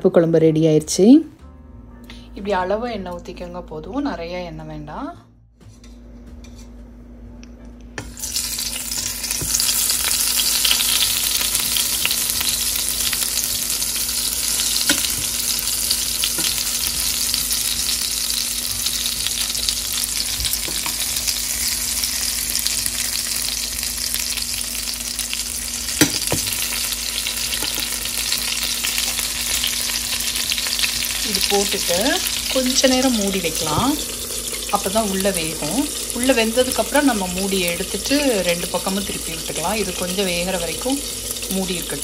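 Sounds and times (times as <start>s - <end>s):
eggplant sizzling in hot oil: 8.0s - 42.0s.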